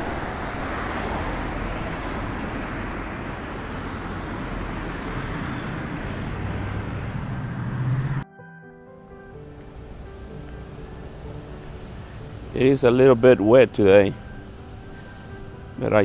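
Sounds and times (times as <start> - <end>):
cars driving past: 0.0 - 8.2
vehicle engine speeding up: 0.0 - 8.2.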